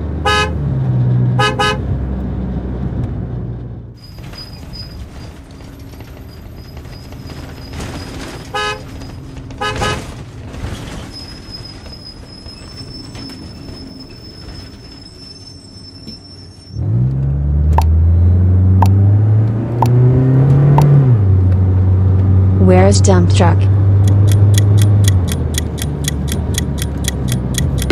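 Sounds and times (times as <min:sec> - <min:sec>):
city street traffic: 0:00.0 - 0:27.9
car horn toots: 0:00.2 - 0:00.6, 0:01.4 - 0:01.9, 0:08.5 - 0:08.9, 0:09.6 - 0:10.1
sharp clicks: 0:24.0 - 0:27.9.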